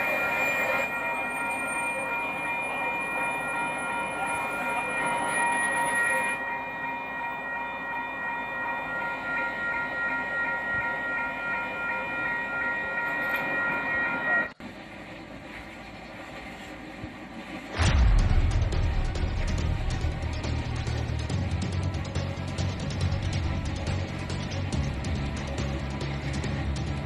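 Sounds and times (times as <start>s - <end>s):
steady high tone: 0.0s - 14.6s
steam locomotive engine noise: 0.0s - 27.0s.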